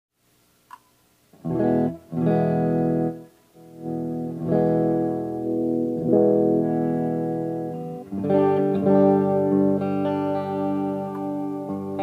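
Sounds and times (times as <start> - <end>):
electric guitar chords: 1.3 - 12.0.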